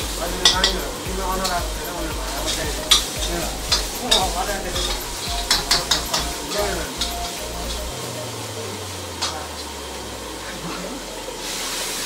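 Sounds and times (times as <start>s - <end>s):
ladle scraping and clanking on wok: 0.0s - 7.9s
vegetables sizzling in a wok: 0.0s - 12.0s.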